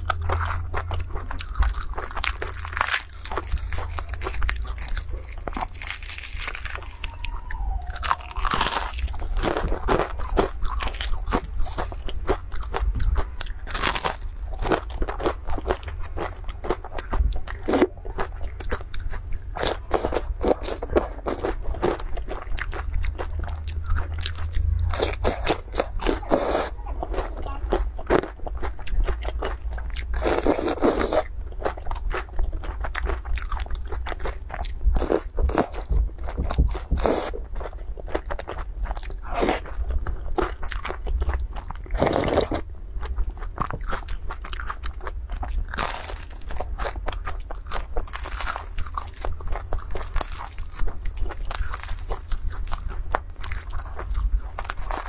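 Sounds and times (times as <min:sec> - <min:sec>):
crunchy chewing and biting: 0:00.0 - 0:55.0
slurping: 0:25.1 - 0:27.2.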